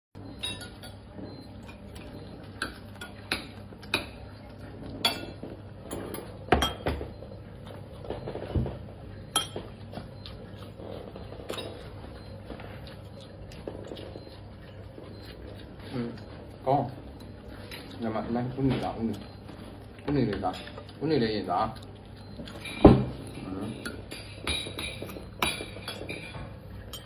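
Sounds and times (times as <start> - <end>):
fork clinking against ceramic bowl: 0.3 - 4.3, 5.0 - 7.0, 9.3 - 9.8, 22.2 - 27.0.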